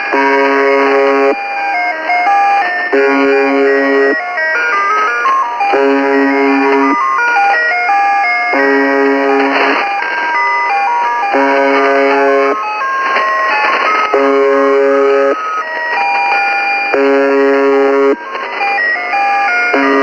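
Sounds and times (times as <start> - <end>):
harsh radio buzz tones: 0.0 - 1.4, 2.9 - 4.2, 5.7 - 7.0, 8.5 - 10.5, 11.3 - 20.0
radio static hiss: 0.0 - 1.4, 8.6 - 10.7, 11.3 - 20.0
electronic toy melody beeps: 0.0 - 20.0.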